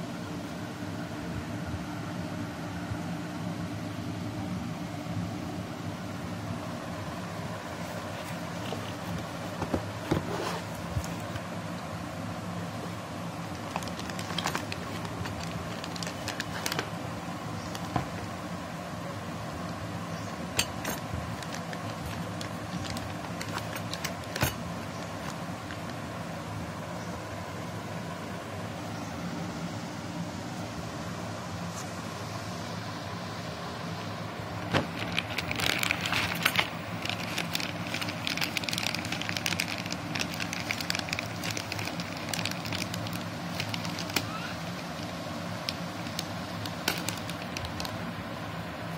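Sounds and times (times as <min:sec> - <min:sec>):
steady low hum: 0:00.0 - 0:48.9
anti-static bag crinkling: 0:07.8 - 0:11.5, 0:13.4 - 0:18.4, 0:20.6 - 0:26.2, 0:34.5 - 0:48.1.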